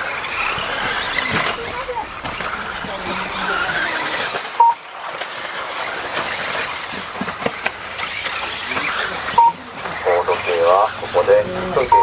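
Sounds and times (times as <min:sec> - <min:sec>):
rc car motors and tyres hissing: 0:00.0 - 0:11.9
short sharp beep: 0:04.6 - 0:04.8, 0:09.4 - 0:09.6.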